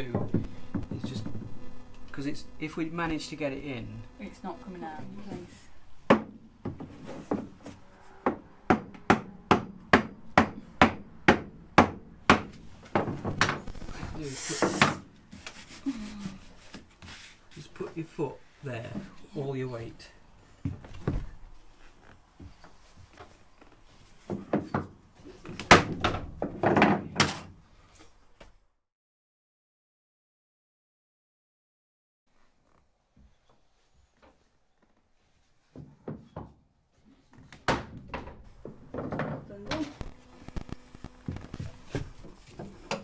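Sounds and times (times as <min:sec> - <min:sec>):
hammer knocking wooden board: 0:00.0 - 0:01.6, 0:06.1 - 0:07.6, 0:08.2 - 0:13.6.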